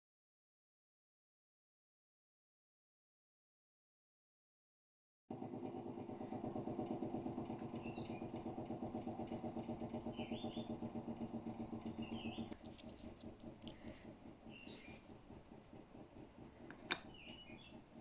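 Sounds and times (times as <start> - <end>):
motor throbbing: 5.3 - 18.0.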